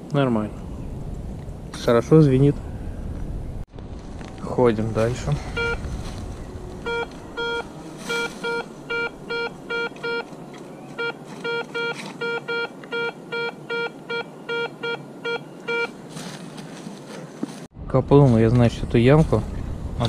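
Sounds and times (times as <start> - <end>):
metal detector beeping: 5.5 - 5.8, 6.8 - 10.3, 11.0 - 16.0.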